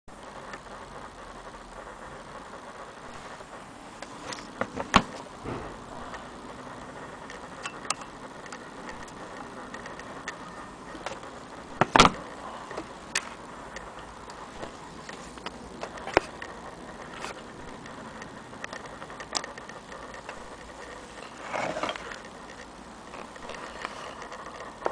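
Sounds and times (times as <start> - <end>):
loud knocks: 4.9 - 6.0.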